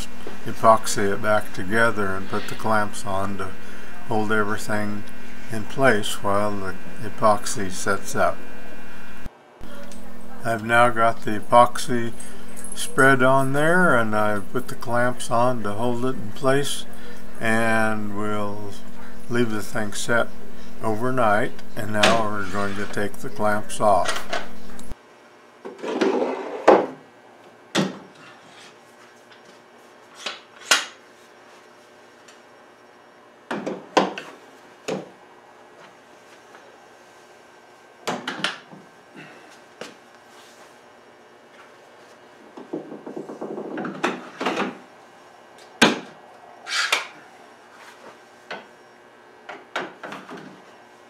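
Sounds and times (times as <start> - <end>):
clamp scraping slide: 46.7 - 47.1.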